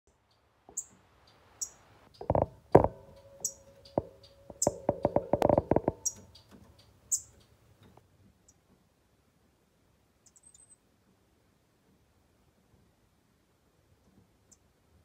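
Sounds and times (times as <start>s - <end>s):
low clicks and knocks: 2.2s - 6.8s.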